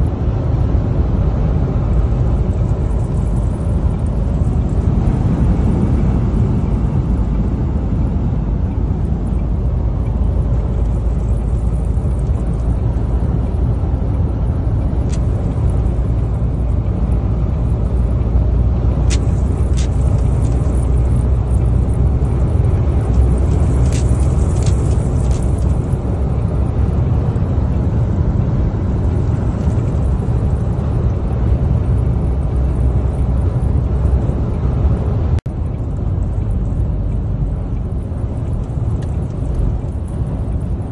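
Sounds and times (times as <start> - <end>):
road and wind noise in cab: 0.0 - 40.9
sharp ticks: 9.1 - 26.0, 35.6 - 40.9.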